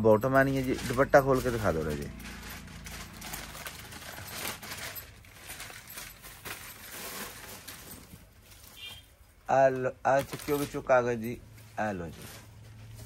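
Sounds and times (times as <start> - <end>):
fabric and packaging rustling: 0.0 - 13.0.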